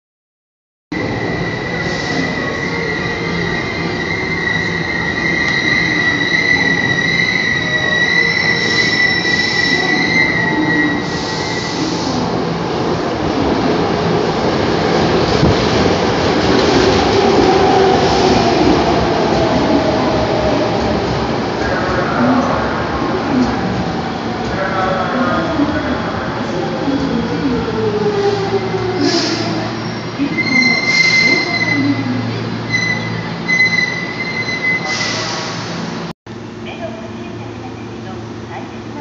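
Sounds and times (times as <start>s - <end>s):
train cars rumbling and clattering: 1.0s - 39.0s
high wheel squeal: 29.0s - 32.0s, 32.7s - 35.5s.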